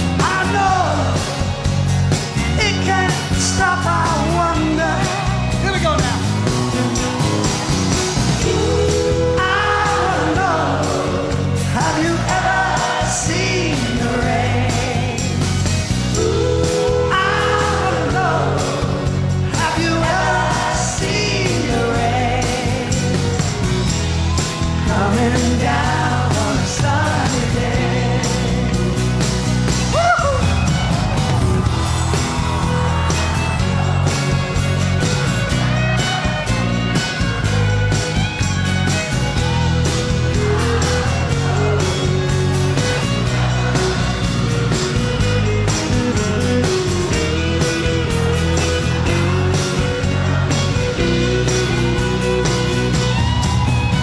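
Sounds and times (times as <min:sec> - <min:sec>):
lead and backing vocals: 0:00.0 - 0:36.5, 0:39.4 - 0:53.3
live rock band playing: 0:00.0 - 0:54.0
violin melody: 0:30.4 - 0:54.0.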